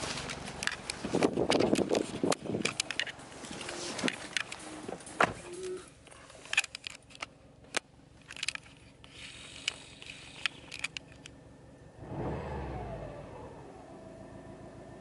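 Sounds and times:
car engine starting and revving: 11.9s - 15.0s.

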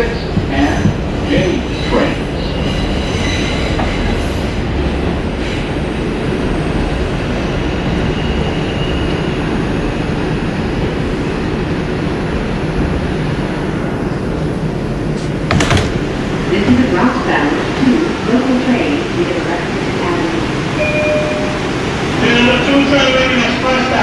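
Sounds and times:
subway train wheels rumbling: 0.0s - 24.0s.

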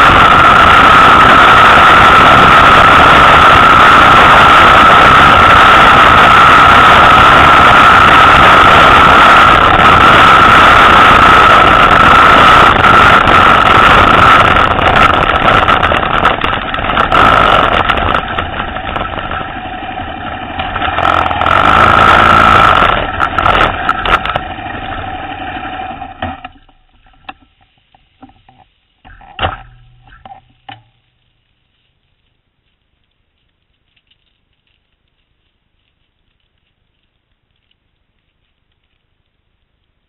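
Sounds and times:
loud motorcycle engine: 0.0s - 26.8s
faint clicks and knocks: 26.2s - 40.0s.

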